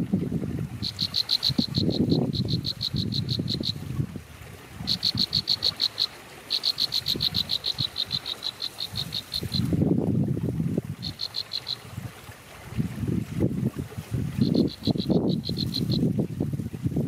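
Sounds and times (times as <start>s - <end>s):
animal calling in clicky pulses: 0.8s - 3.8s, 4.9s - 9.7s, 11.0s - 11.8s, 14.4s - 16.0s.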